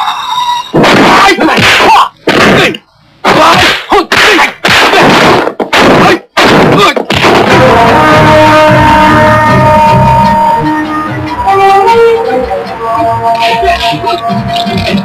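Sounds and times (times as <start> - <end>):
punch and kick impacts: 0.8 - 8.0
music with held notes: 7.5 - 15.0.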